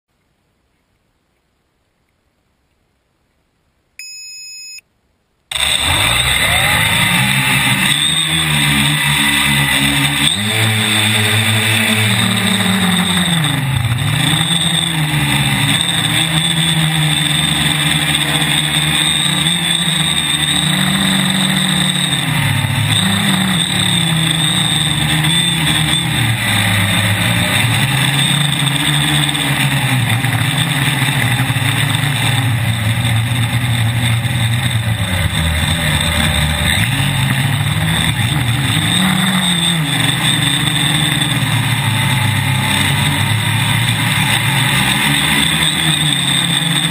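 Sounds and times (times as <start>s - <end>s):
drone propellers buzzing: 5.5s - 46.9s
high whine: 5.5s - 46.9s.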